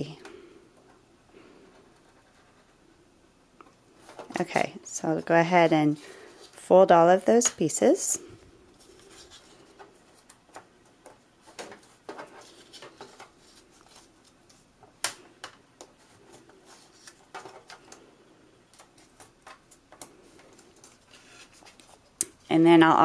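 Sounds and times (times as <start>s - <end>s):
cardstock folding clicks and crinkles: 9.0s - 22.4s.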